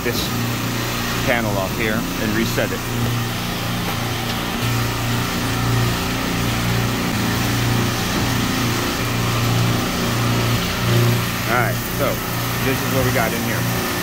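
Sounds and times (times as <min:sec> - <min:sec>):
refrigeration compressors droning: 0:00.0 - 0:14.0.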